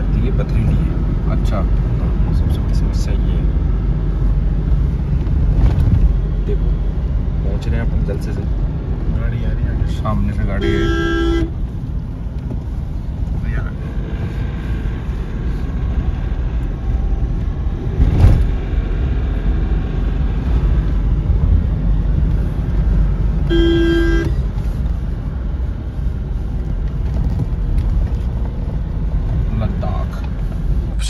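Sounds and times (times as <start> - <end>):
road and engine rumble: 0.0 - 31.0
car horn: 10.4 - 11.6, 23.4 - 24.4
thump: 18.0 - 18.6.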